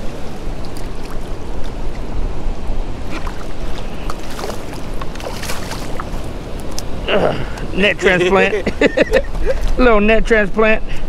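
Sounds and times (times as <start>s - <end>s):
lapping shallow water: 0.0s - 9.8s
wind buffeting microphone: 0.0s - 11.0s
fish thrashing and splashing: 3.0s - 6.8s.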